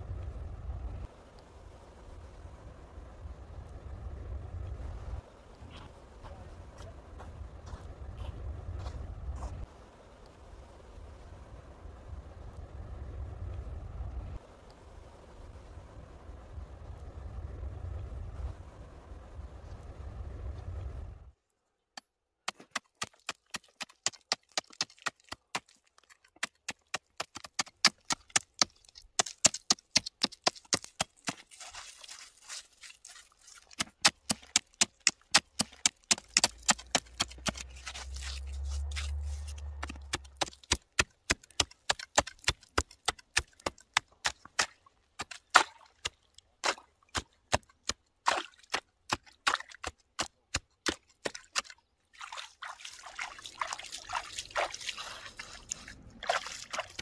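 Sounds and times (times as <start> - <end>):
low rumble: 15.5 - 21.4, 36.6 - 40.6.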